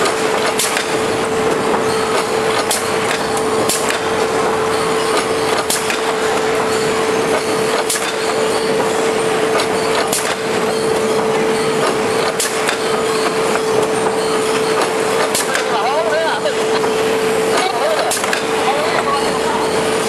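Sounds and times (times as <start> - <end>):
sharp machine click: 0.0 - 1.0, 2.0 - 4.2, 5.0 - 6.3, 7.3 - 8.7, 9.5 - 11.0, 11.6 - 15.8
machine hum: 0.0 - 20.0.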